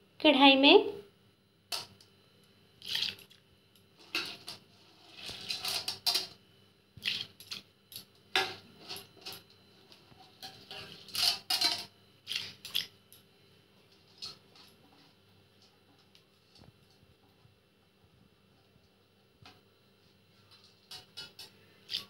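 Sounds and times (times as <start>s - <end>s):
lentils splashing into water: 2.8s - 3.3s
hand stirring lentils in water: 7.0s - 7.6s.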